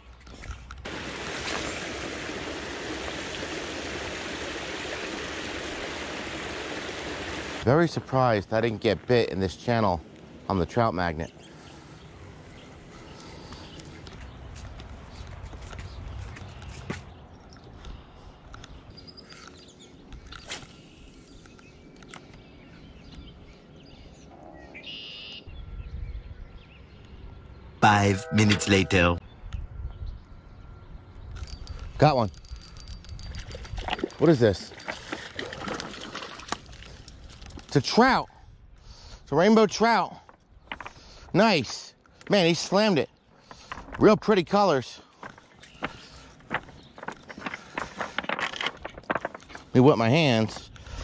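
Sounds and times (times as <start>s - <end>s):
water spilling over concrete: 0.9s - 7.6s, 33.9s - 37.0s
songbirds chirping: 7.7s - 33.3s, 36.2s - 51.0s.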